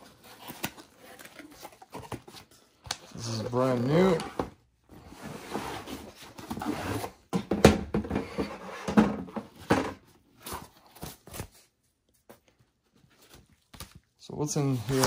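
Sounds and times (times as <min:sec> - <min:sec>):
cardboard box rustling and sliding: 0:05.0 - 0:07.2.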